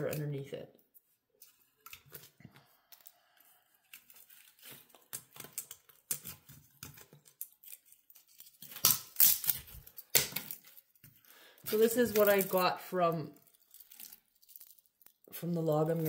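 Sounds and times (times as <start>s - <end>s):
bark tearing and crackling: 3.8s - 12.7s, 13.3s - 16.0s.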